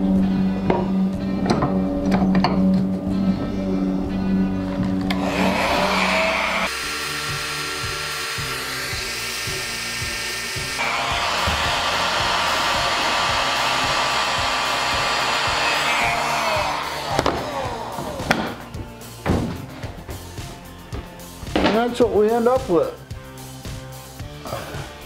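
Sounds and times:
heat gun blowing hot air: 5.1s - 18.7s
knocks on a bench: 19.2s - 19.9s.

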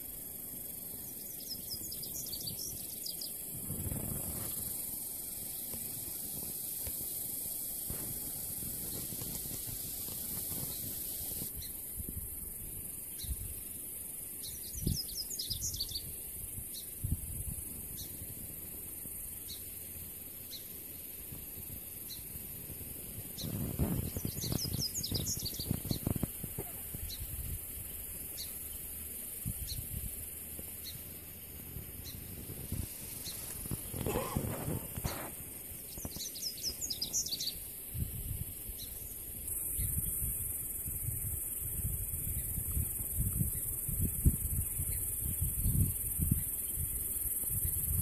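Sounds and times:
steady hiss: 0.0s - 48.0s
bird chirping: 0.9s - 3.4s, 23.4s - 27.2s, 35.8s - 37.6s
low rumbling on microphone: 31.6s - 35.4s.

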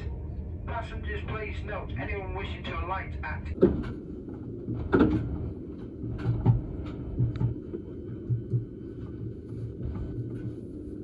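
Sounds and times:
low hum of electric train: 0.0s - 11.0s.

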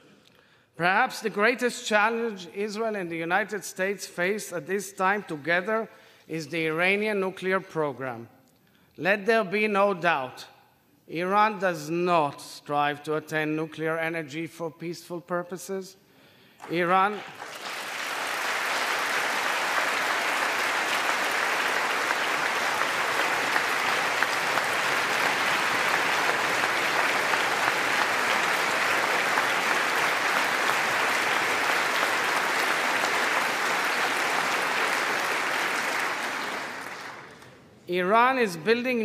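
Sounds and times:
large crowd applauding: 16.6s - 37.6s.

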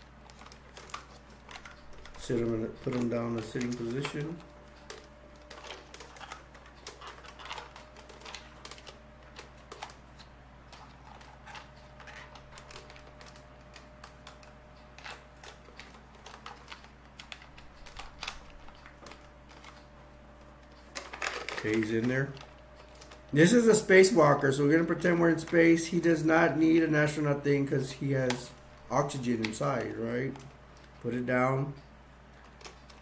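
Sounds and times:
faint steady hum: 0.0s - 33.0s
plastic toy clicking and rattling: 0.2s - 19.8s, 20.8s - 24.0s, 32.4s - 33.0s.

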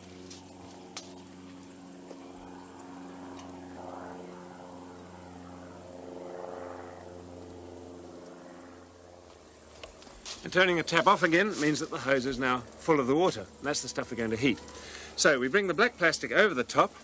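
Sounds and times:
steady low hum: 0.0s - 17.0s
hose water splashing onto grass: 10.2s - 12.6s.

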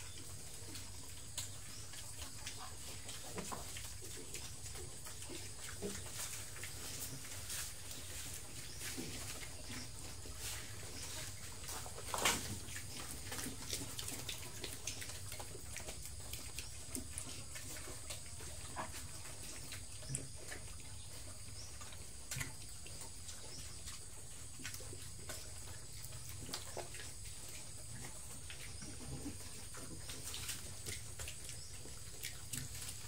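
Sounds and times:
pigs chewing and smacking: 0.0s - 33.0s.

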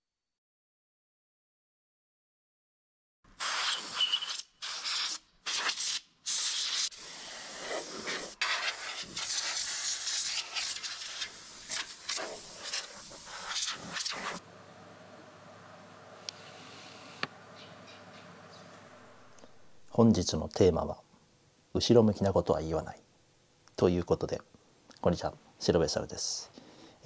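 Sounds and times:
compressed air duster hissing: 3.4s - 14.4s, 16.4s - 17.3s.

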